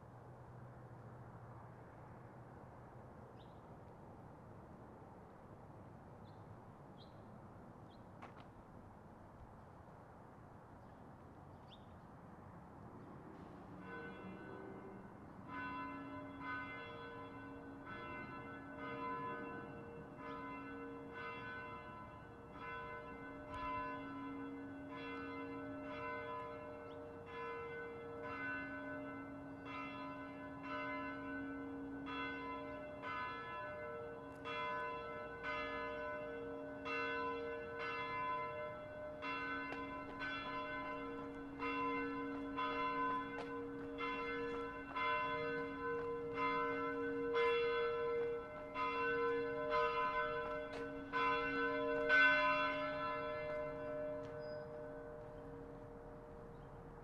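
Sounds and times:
church bell tolling: 0:13.4 - 0:57.0.

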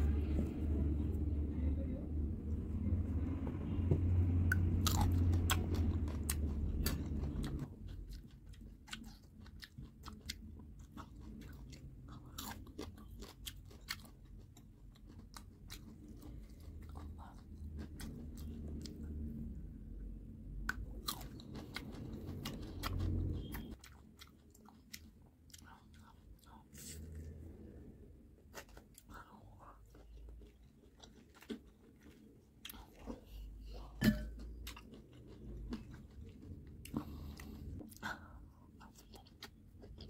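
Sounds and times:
chewing and crunching fruit: 0:03.4 - 0:19.6, 0:20.5 - 0:40.0.

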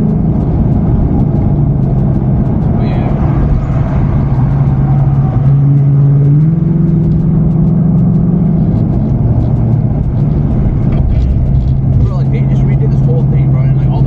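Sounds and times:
car engine accelerating: 0:00.0 - 0:14.0.

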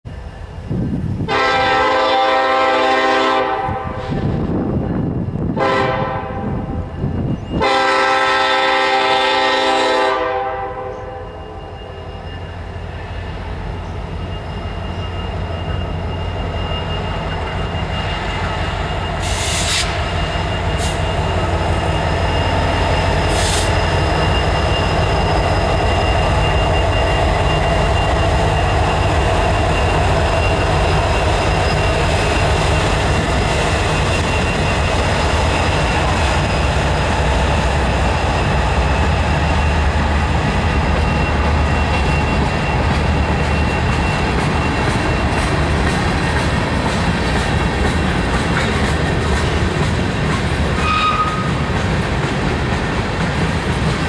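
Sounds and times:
diesel locomotives rumbling: 0:00.0 - 0:54.0
train wheels rolling on rails: 0:00.1 - 0:54.0
locomotive horn chords: 0:01.3 - 0:04.2, 0:05.6 - 0:06.7, 0:07.6 - 0:11.7.

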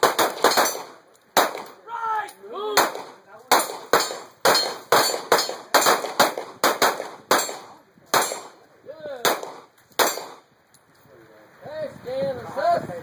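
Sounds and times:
handguns firing: 0:00.0 - 0:01.8, 0:02.8 - 0:08.6, 0:09.2 - 0:10.4.

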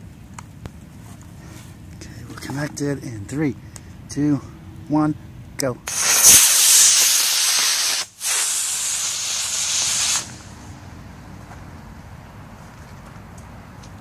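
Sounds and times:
rocket motor hissing: 0:05.9 - 0:10.7.

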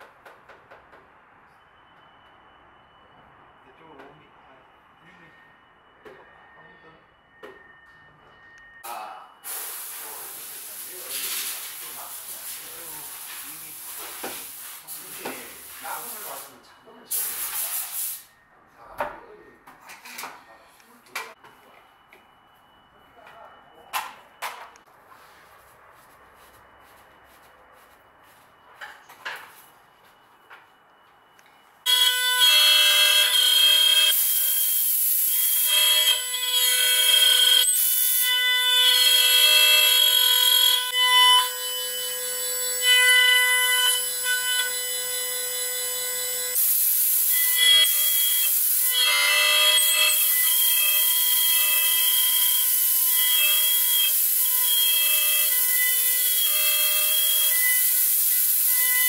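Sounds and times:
router bit cutting wood hiss: 0:31.9 - 0:59.0
router spindle high whine: 0:31.9 - 0:59.0.

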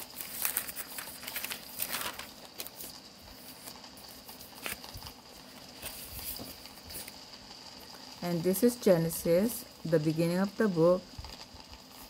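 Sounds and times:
thin pages rustling: 0:00.0 - 0:07.1.

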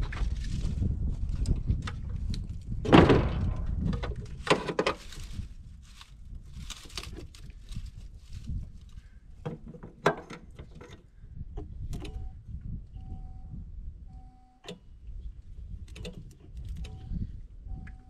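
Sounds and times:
loud thump: 0:02.8 - 0:04.2
battery cables and tools clunking: 0:03.1 - 0:05.4, 0:06.6 - 0:12.3.

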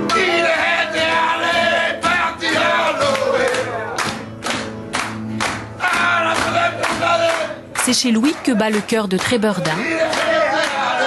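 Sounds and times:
men singing together: 0:00.0 - 0:03.9, 0:05.8 - 0:07.6, 0:09.7 - 0:11.0
hand claps in steady beat: 0:00.0 - 0:11.0.

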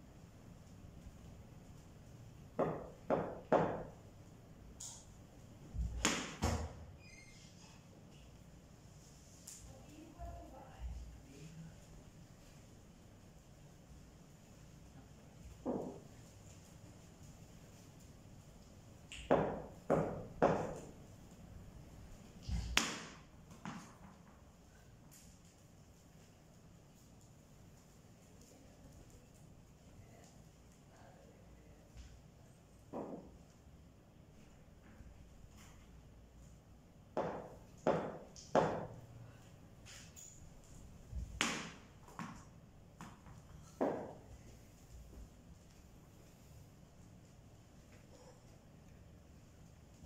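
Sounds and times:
ball knocking on tiled floor: 0:02.6 - 0:04.0, 0:15.5 - 0:16.1, 0:19.1 - 0:21.0, 0:32.9 - 0:33.4, 0:37.2 - 0:39.0, 0:41.2 - 0:44.2.

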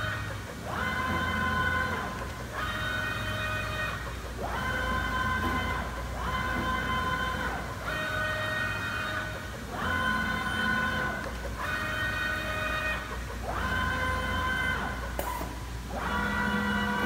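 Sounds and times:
cutting table drives whining: 0:00.0 - 0:17.0
steady low hum: 0:00.0 - 0:17.0.

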